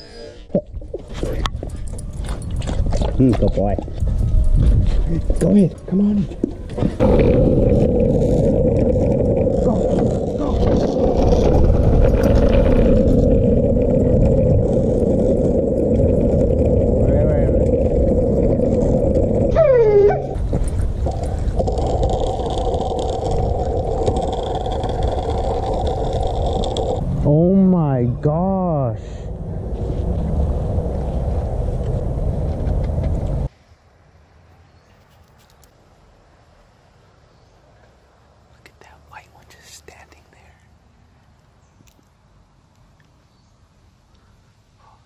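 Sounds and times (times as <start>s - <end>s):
faint outdoor background: 0.0s - 45.0s
wind across microphone: 0.7s - 33.6s
skateboard wheels rolling on asphalt: 0.8s - 5.6s, 6.2s - 33.8s.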